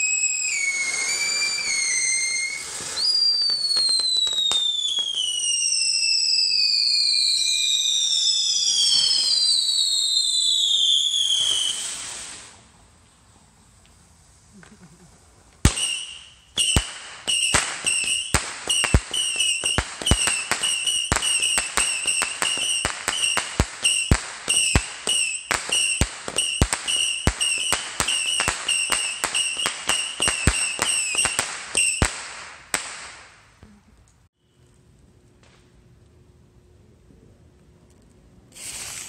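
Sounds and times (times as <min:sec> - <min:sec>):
firework whistle: 0:00.0 - 0:12.6, 0:15.6 - 0:33.2, 0:38.5 - 0:39.0
firework cracks: 0:00.0 - 0:12.7, 0:13.8 - 0:33.5, 0:38.5 - 0:39.0.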